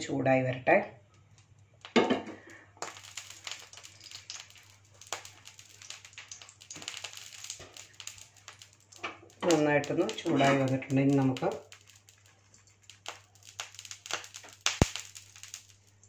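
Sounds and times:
ghee crackling in pan: 1.0s - 16.0s.

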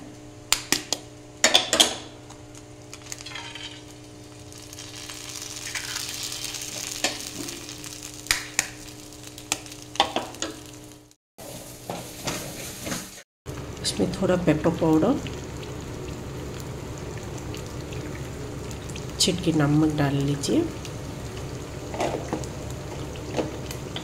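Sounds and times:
eggshells cracking: 2.8s - 10.2s
eggs sizzling in hot oil: 2.8s - 24.0s.

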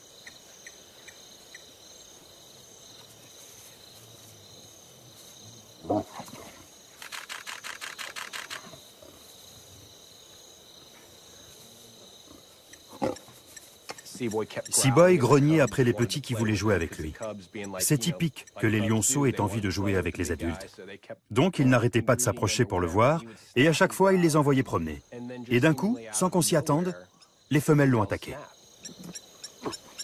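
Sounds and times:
crickets trilling: 0.0s - 30.0s
lion growling: 5.8s - 6.7s
camera shutter burst: 7.0s - 8.7s.

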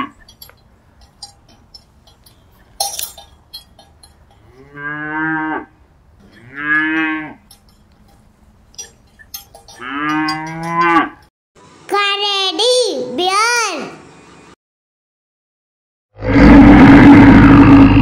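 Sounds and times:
short metallic clinks: 0.0s - 4.6s, 6.2s - 11.3s
cows mooing: 0.0s - 11.3s.

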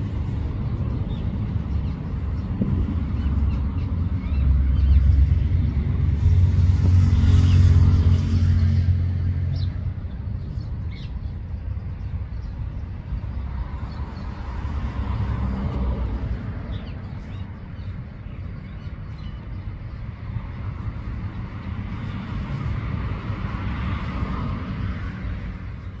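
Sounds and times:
vehicle engine rumbling: 0.0s - 18.6s
traffic rumble: 0.0s - 26.0s.

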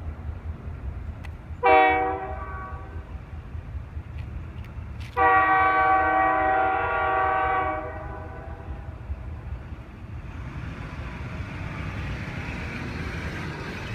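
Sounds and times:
locomotive air horn blast: 1.6s - 3.0s, 5.2s - 8.9s.

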